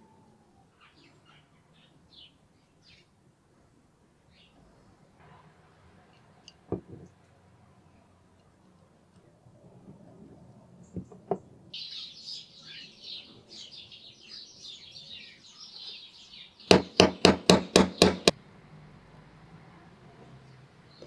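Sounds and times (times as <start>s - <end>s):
birds twittering: 0.7s - 3.1s, 11.8s - 18.3s.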